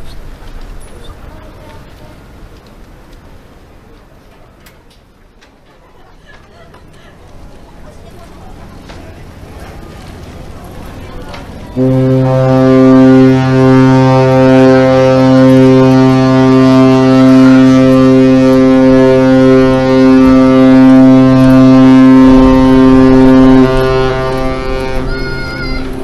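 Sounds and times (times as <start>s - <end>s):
low rumble: 7.2s - 26.0s
deep ship's horn blast: 11.4s - 26.0s.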